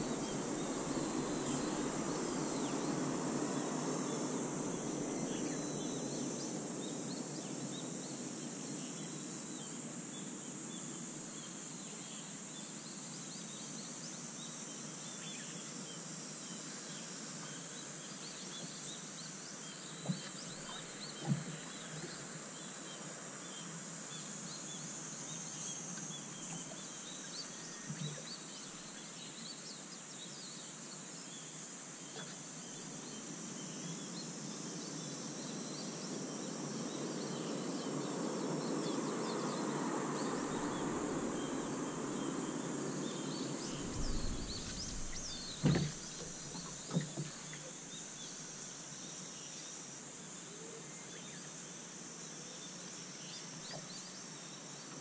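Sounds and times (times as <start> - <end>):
high insect drone: 0.0 - 55.0
birds chirping: 39.1 - 48.5
broad rushing sound: 43.4 - 46.8
sharp knocks: 43.8 - 47.4.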